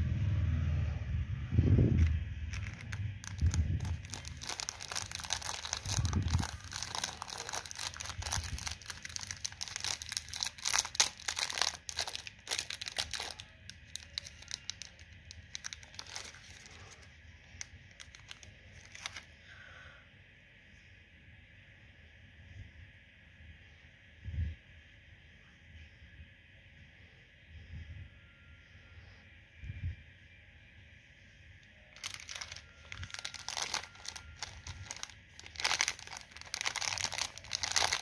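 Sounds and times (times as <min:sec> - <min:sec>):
plastic packet crinkling: 0:01.9 - 0:19.3, 0:31.9 - 0:38.0
packet tearing: 0:02.0 - 0:17.0, 0:17.6 - 0:19.3, 0:32.0 - 0:38.0.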